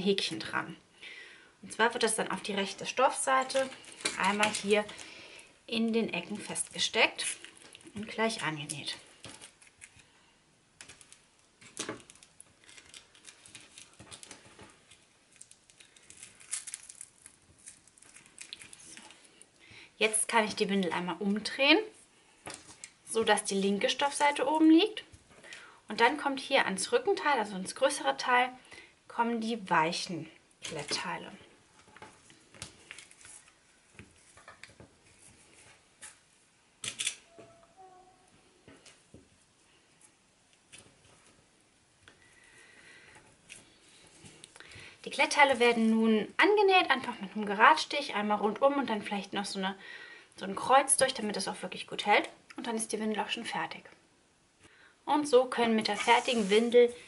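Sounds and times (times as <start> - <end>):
rustling of fabric and tape: 2.6 - 5.2, 6.2 - 19.6, 20.6 - 24.2, 30.6 - 46.0, 55.6 - 57.0.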